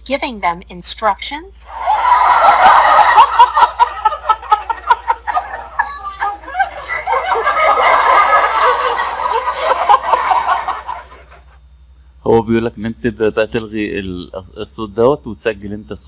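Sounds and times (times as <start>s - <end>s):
crowd laughing: 1.7s - 11.6s.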